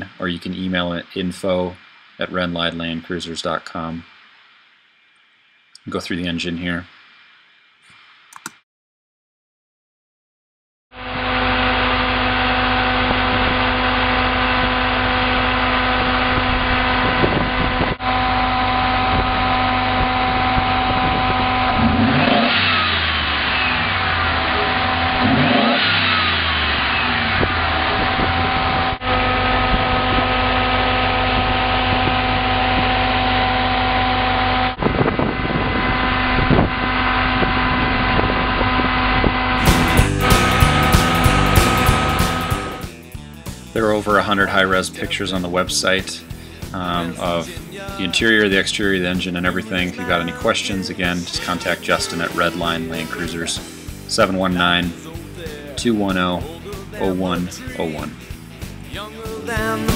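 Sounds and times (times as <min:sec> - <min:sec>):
engine idling and revving: 0:11.2 - 0:43.3.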